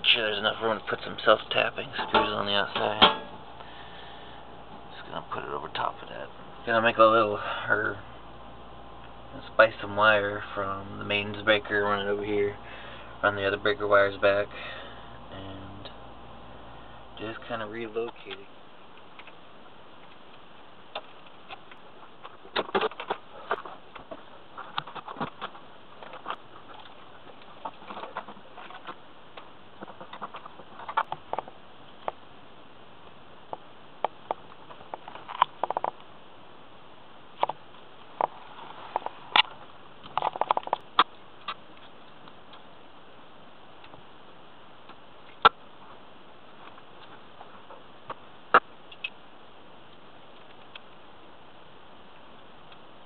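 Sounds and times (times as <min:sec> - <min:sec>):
clicks and taps in metal panel: 0:02.0 - 0:03.4.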